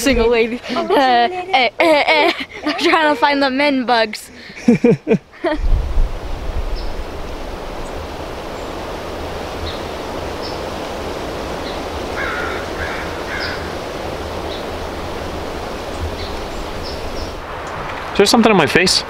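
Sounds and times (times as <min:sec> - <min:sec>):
wind rushing over microphone: 0:05.4 - 0:19.0.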